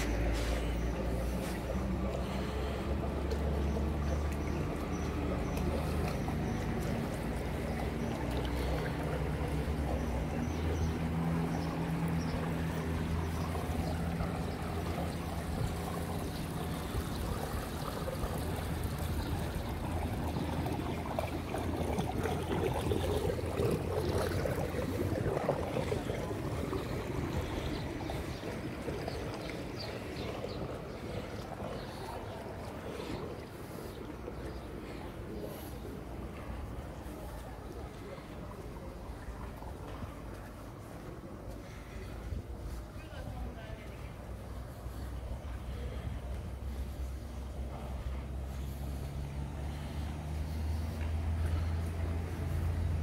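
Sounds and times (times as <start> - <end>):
water running and trickling: 0.0 - 40.8
pool machinery humming: 0.0 - 53.0.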